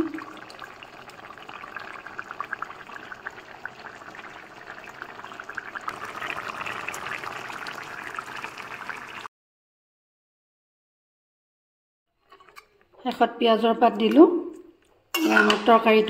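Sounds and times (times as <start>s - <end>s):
curry boiling with bubbling pops: 0.0s - 9.3s.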